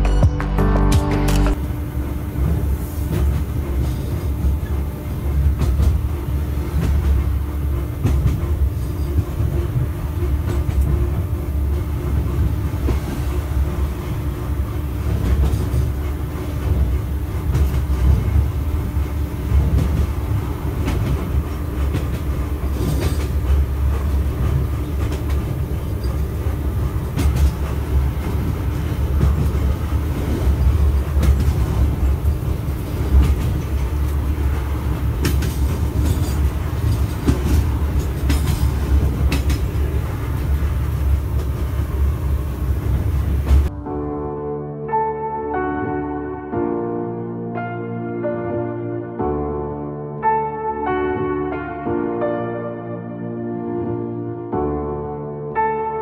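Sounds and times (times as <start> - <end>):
metro train rumble and hum: 0.0 - 46.4
wheels clicking over rail joints: 15.1 - 43.7.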